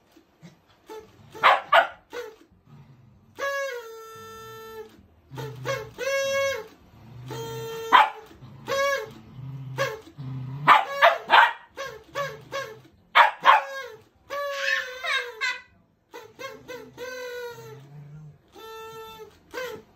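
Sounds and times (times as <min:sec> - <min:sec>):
party blower tooting: 0:00.0 - 0:19.9
dog barking: 0:01.4 - 0:02.1, 0:07.9 - 0:08.3, 0:10.6 - 0:11.7, 0:13.1 - 0:13.8.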